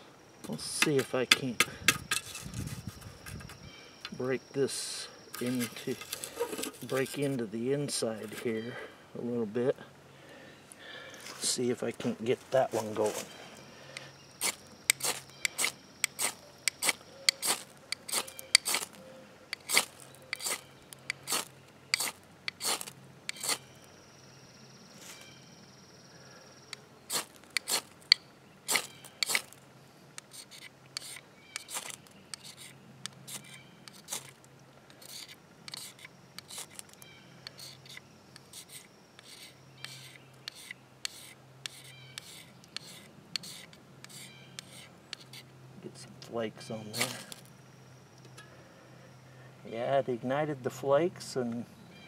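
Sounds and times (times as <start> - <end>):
ferro rod scraping: 5.3 - 8.6, 14.4 - 23.7, 27.1 - 29.6, 30.2 - 45.4.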